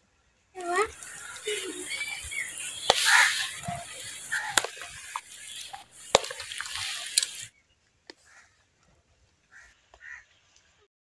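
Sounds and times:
spoon stirring wet salad: 0.6s - 7.5s.

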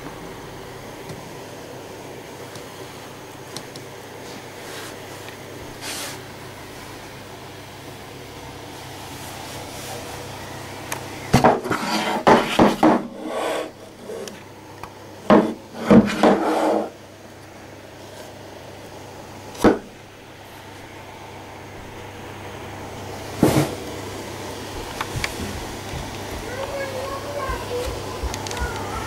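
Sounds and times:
wooden box scraping and knocking: 11.4s - 14.2s, 15.3s - 16.9s.

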